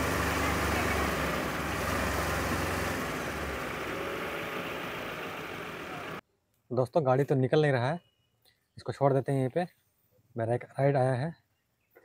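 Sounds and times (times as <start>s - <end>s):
vehicle engine humming: 0.0s - 6.2s.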